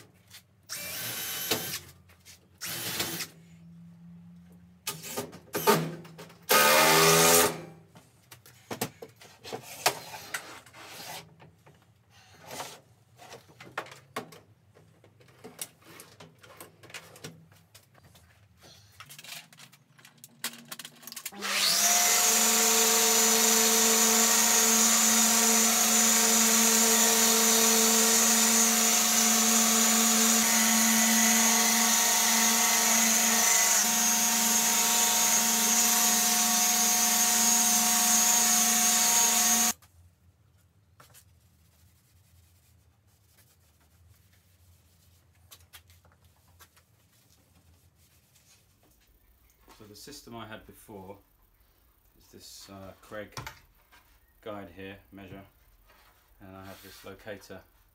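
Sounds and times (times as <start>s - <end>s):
orbital sander running: 21.4s - 39.8s.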